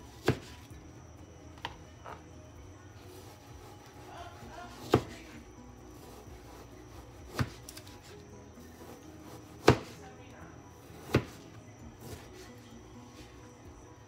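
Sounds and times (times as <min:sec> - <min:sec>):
knife slicing raw chicken: 0:07.3 - 0:08.0, 0:08.8 - 0:10.0.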